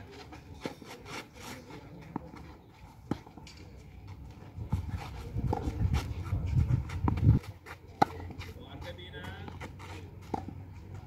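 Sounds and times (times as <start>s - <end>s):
tennis ball hits: 7.9s - 8.4s.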